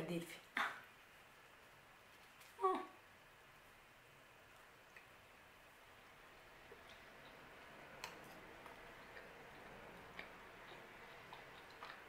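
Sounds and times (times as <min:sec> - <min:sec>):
mouth clicks of chewing: 0:06.8 - 0:07.4, 0:08.0 - 0:12.0.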